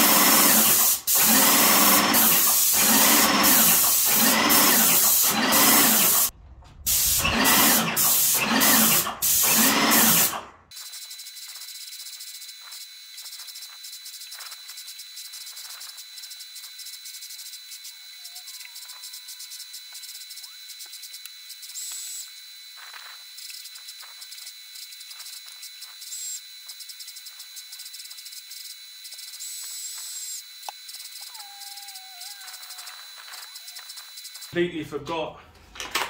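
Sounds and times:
paint sprayer hissing: 0:00.0 - 0:06.3, 0:06.9 - 0:18.1, 0:18.7 - 0:34.7
pump pulsing: 0:00.0 - 0:06.3, 0:06.9 - 0:10.4
thin steady high tone: 0:10.7 - 0:22.4, 0:23.4 - 0:34.6.

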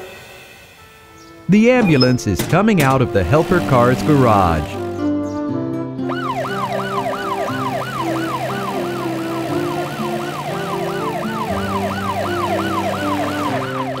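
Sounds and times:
background music: 0:00.0 - 0:14.0
cartoon ambulance siren wailing: 0:06.1 - 0:14.0.

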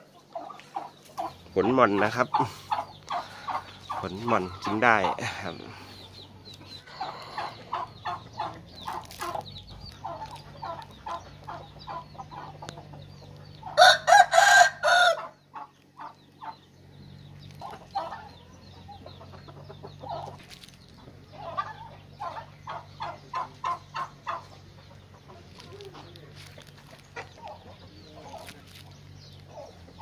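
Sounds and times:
chickens clucking: 0:00.0 - 0:30.0
rooster crowing: 0:13.8 - 0:15.4.

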